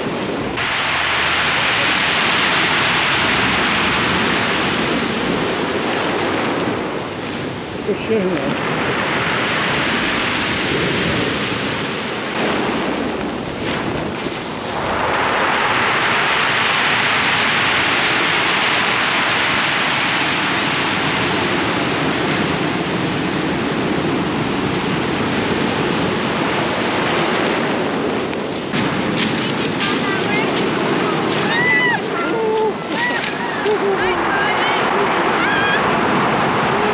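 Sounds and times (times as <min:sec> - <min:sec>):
ocean surf rushing: 0:00.0 - 0:36.9.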